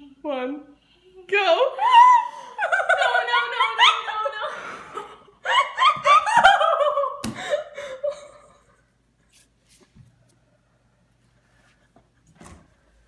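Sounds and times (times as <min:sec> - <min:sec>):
people giggling: 0:02.6 - 0:08.7.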